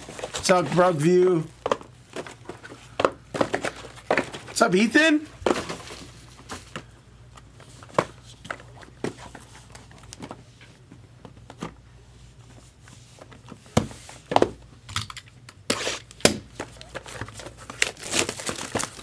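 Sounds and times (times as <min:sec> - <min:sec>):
faint steady hum: 0:00.0 - 0:19.0
cardboard boxes knocking on table: 0:03.0 - 0:04.4.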